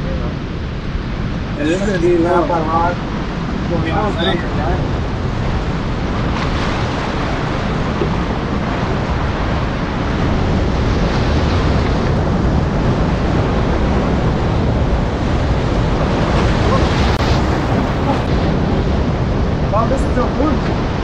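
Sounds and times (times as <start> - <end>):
wind buffeting the microphone: 0.0 - 21.0
surf breaking against rocks: 3.0 - 19.8.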